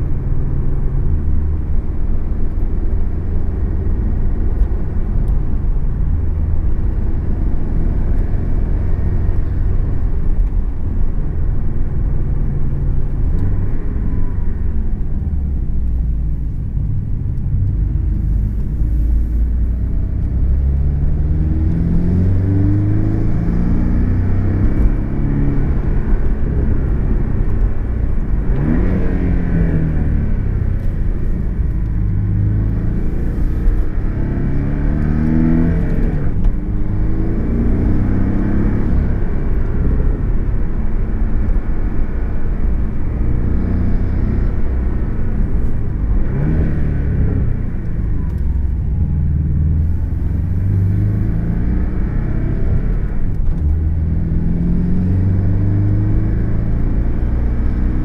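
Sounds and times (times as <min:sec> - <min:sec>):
car engine accelerating: 0:00.0 - 0:58.0
road and tyre rumble: 0:00.0 - 0:58.0.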